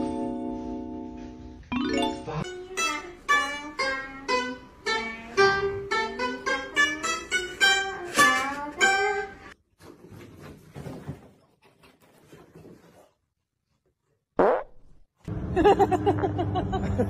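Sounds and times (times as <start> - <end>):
plucked lute melody: 1.8 - 9.5.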